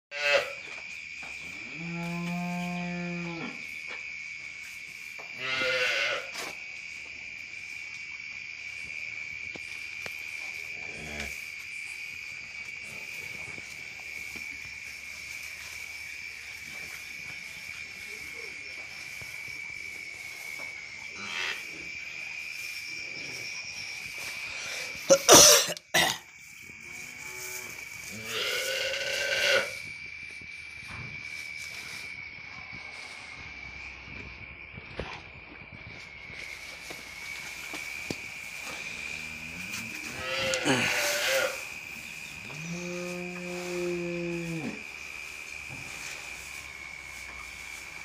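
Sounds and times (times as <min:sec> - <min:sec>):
crickets chirring: 0:00.1 - 0:48.0
calf bleating: 0:05.4 - 0:06.3.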